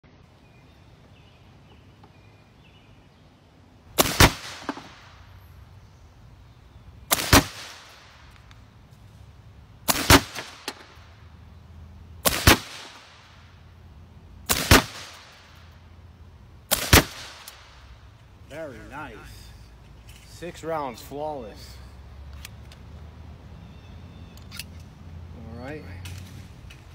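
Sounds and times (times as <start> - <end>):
air rifle shots: 4.0 - 5.3, 7.1 - 8.4, 9.8 - 11.2, 12.2 - 13.5, 14.4 - 15.7, 16.7 - 18.0.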